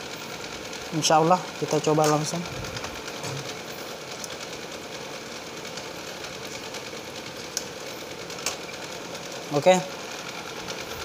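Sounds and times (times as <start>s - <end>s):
machine hum with flutter: 0.0s - 11.0s.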